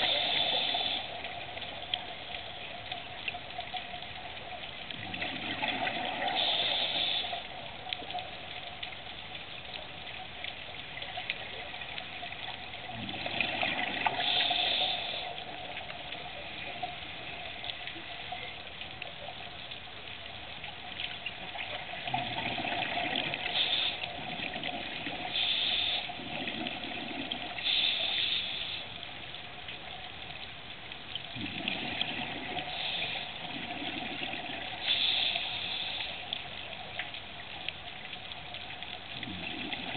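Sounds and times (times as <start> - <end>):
regulator hissing inhalations: 0.0 - 1.3, 6.2 - 7.6, 14.1 - 15.6, 23.4 - 24.2, 25.3 - 26.2, 27.6 - 28.9, 32.6 - 33.4, 34.8 - 36.3
bubbling exhalations: 12.8 - 15.2, 21.9 - 27.6, 31.3 - 34.8, 39.2 - 39.9.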